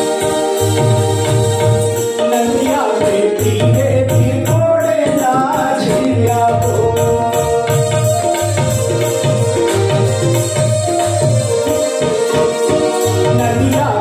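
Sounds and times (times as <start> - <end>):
keyboard steady tones: 0.0 - 4.6, 5.9 - 14.0
harmonium: 0.0 - 14.0
jingling percussion: 0.0 - 14.0
regular drum beat: 0.0 - 14.0
person singing: 2.1 - 8.3, 13.0 - 14.0.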